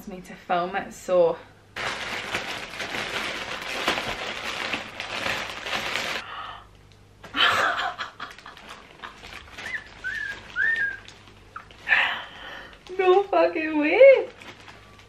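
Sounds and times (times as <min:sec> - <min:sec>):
plastic bag tearing and rustling: 0:01.8 - 0:06.2, 0:08.2 - 0:15.0
person laughing: 0:07.2 - 0:09.4.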